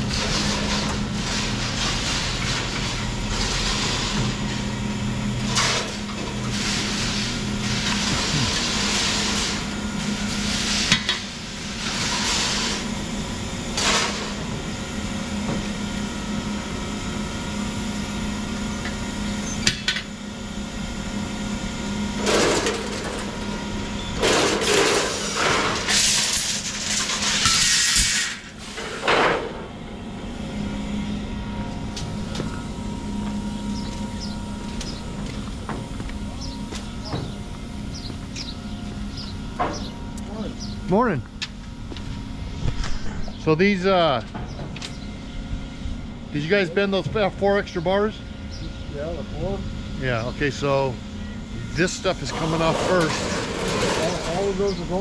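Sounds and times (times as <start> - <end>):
motor humming: 0.0 - 10.6, 28.5 - 55.0.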